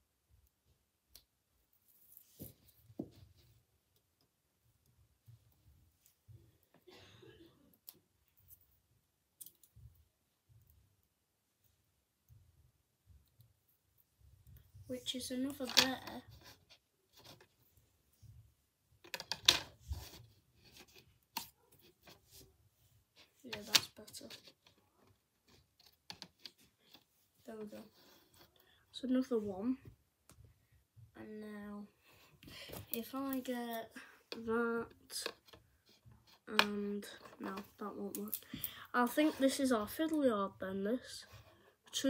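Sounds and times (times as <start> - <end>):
soft rustle: 1.6 - 3.7, 19.7 - 31.1.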